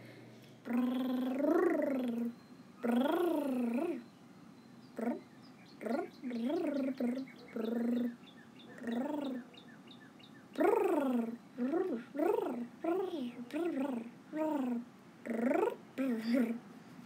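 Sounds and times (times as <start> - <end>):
small birds chirping: 0.6 - 16.6
voice making warbling creature noises: 0.7 - 4.0.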